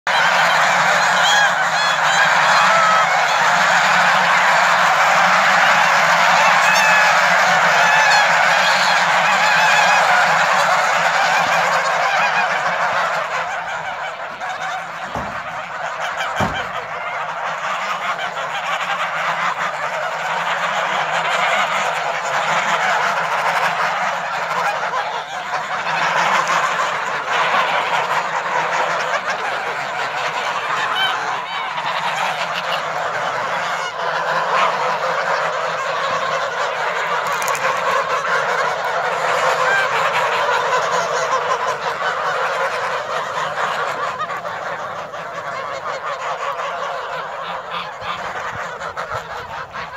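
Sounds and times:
geese honking: 0:00.1 - 0:49.9
low thumps: 0:15.1 - 0:15.6, 0:16.4 - 0:16.9.

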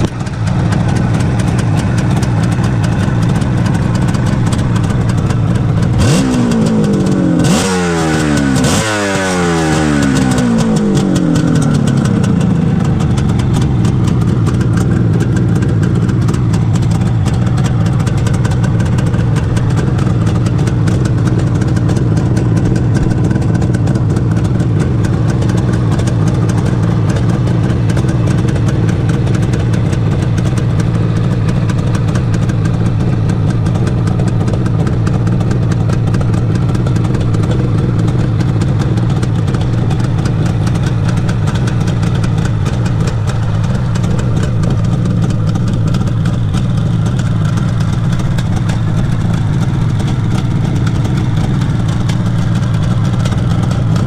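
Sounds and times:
motorcycle engine revving and idling: 0:00.0 - 0:54.0.

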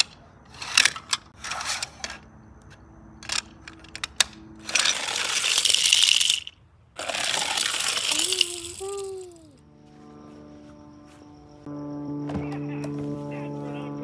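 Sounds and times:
plastic toy cars clicking: 0:00.0 - 0:02.2, 0:03.2 - 0:09.2
toy cars rolling down plastic ramp: 0:03.2 - 0:09.2.

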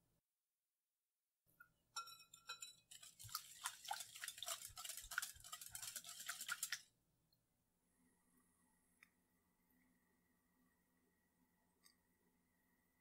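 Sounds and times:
whisk tapping bowl: 0:02.0 - 0:06.9
wire whisk beating batter: 0:02.0 - 0:06.9.

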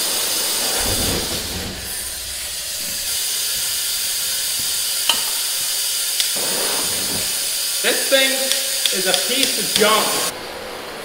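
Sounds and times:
compressed air hissing: 0:00.0 - 0:10.3
low rumble: 0:00.6 - 0:05.1
sharp clicks: 0:04.6 - 0:06.4, 0:08.4 - 0:10.1.

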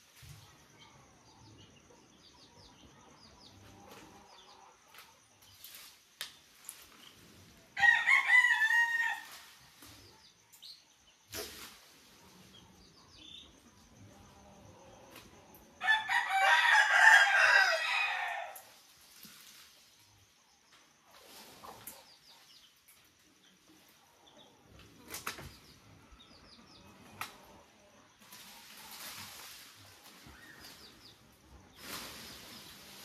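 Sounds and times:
rooster crowing: 0:07.8 - 0:09.4, 0:15.8 - 0:18.7.

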